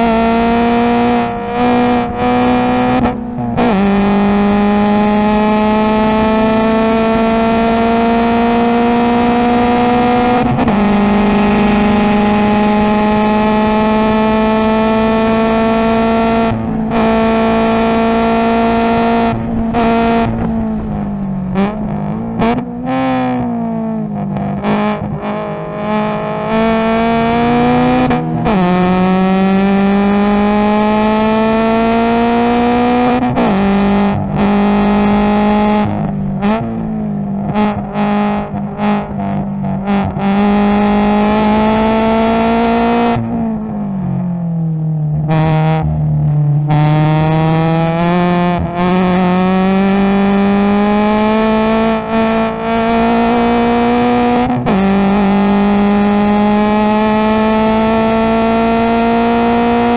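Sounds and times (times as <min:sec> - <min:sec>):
race car engine accelerating: 0:00.0 - 0:59.9.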